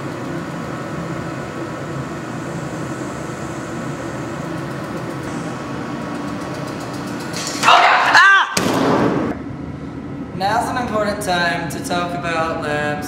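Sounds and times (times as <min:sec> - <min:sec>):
grinding machine motor hum: 0:00.0 - 0:07.6.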